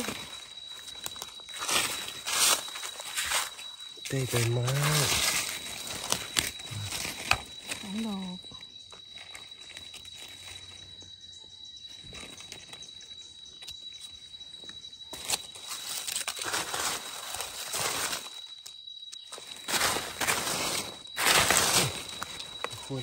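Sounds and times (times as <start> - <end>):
dry leaves rustling and crunching: 0.0 - 8.2, 9.1 - 10.8, 15.1 - 23.0.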